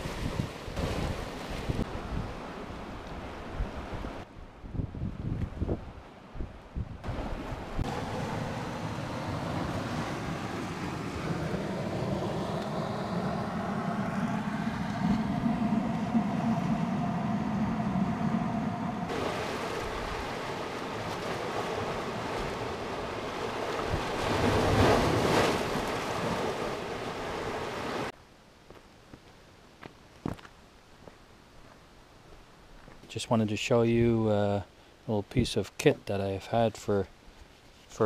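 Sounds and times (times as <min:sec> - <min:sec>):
wind on microphone: 0:00.0 - 0:02.4, 0:03.1 - 0:26.6
water washing against rocks: 0:19.1 - 0:28.1.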